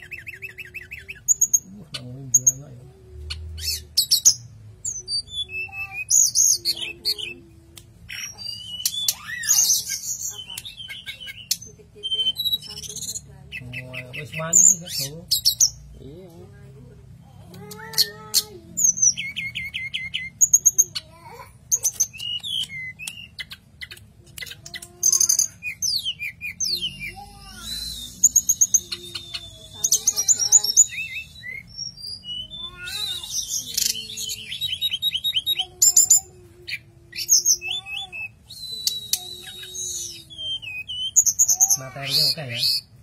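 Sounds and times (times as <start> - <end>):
bird singing whistles and trills: 8.1 - 12.7, 25.1 - 42.9.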